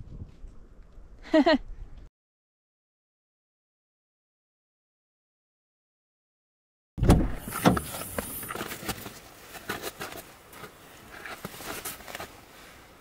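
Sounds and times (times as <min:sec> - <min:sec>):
loud thump: 0:07.0 - 0:07.9
knocks and rustling: 0:07.0 - 0:12.3.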